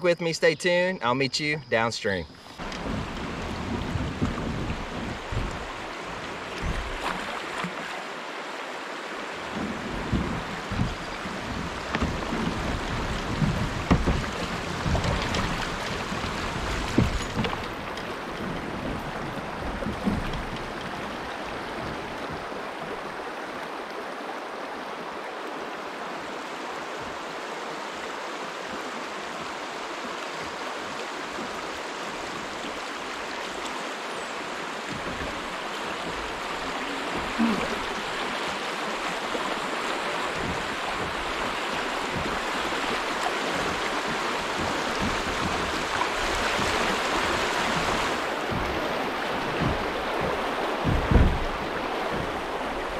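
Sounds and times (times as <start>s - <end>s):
water rushing over rocks: 0.0s - 52.9s
short thumps: 9.6s - 19.0s, 48.2s - 52.9s.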